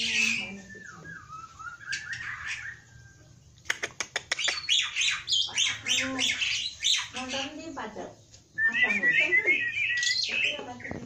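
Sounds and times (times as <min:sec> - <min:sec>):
harsh bird chattering: 0:00.0 - 0:02.9, 0:03.5 - 0:08.0, 0:08.7 - 0:11.0
starling whistled phrase: 0:08.6 - 0:10.8.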